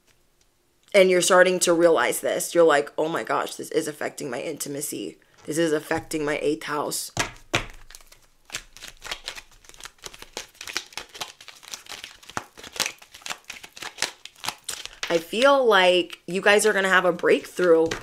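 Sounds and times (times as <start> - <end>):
cards being shuffled: 7.2 - 15.5, 16.5 - 18.0.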